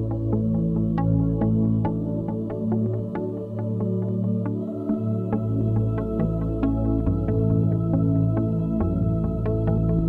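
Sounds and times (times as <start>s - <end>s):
soft new-age music: 0.0s - 10.0s.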